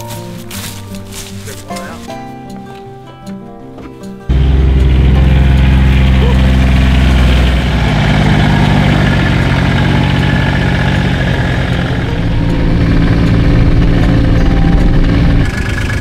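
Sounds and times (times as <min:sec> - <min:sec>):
utility vehicle engine running: 0:04.3 - 0:16.0.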